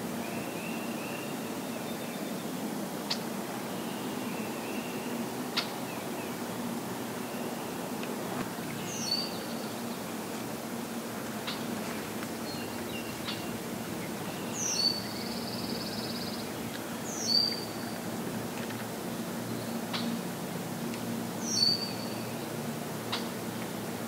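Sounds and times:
low background hum: 0.0 - 24.0
songbird singing with buzzy trill: 0.2 - 7.9, 8.7 - 10.0, 12.4 - 18.0, 21.4 - 22.6.

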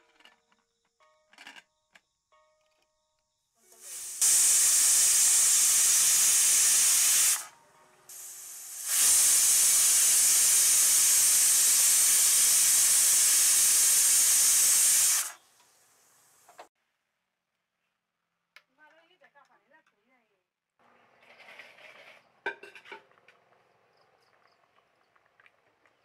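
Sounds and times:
pressure cooker whistling: 3.8 - 15.4.

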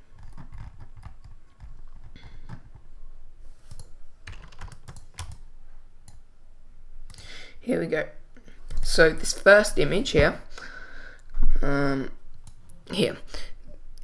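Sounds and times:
keyboard typing: 0.0 - 2.9, 3.6 - 6.2.

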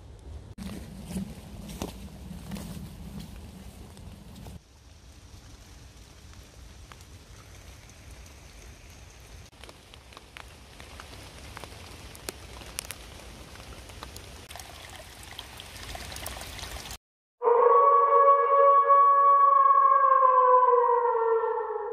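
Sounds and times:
rain on leaves: 0.7 - 17.0.

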